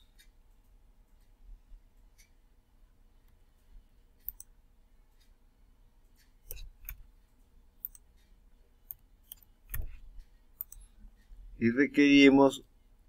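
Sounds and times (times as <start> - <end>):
computer mouse clicks: 4.2 - 4.6, 6.1 - 11.0.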